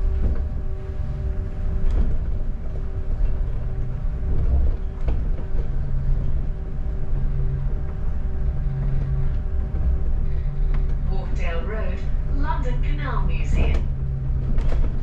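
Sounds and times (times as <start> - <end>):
bus engine rumble: 0.0 - 15.0
bodywork knocks and rattles: 1.7 - 11.1, 13.7 - 15.0.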